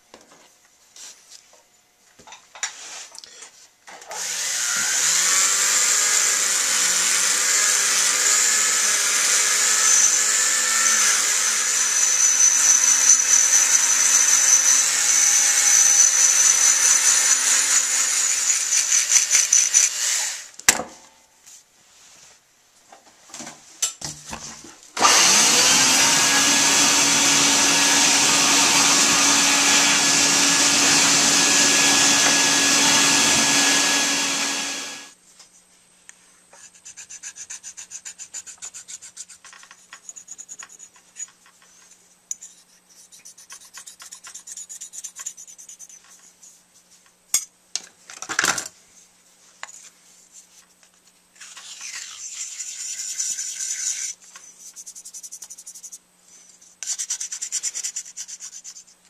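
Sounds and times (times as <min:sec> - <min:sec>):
rotary tool grinding: 0:04.2 - 0:20.5, 0:25.0 - 0:35.1, 0:51.4 - 0:54.2
hand file strokes on metal: 0:36.5 - 0:41.4, 0:42.3 - 0:46.7, 0:51.4 - 0:59.0.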